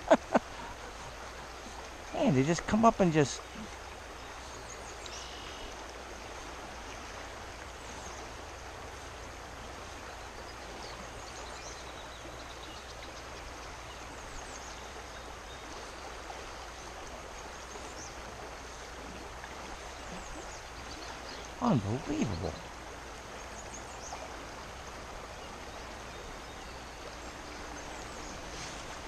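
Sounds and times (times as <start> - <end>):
creek water rushing: 0.0 - 29.0.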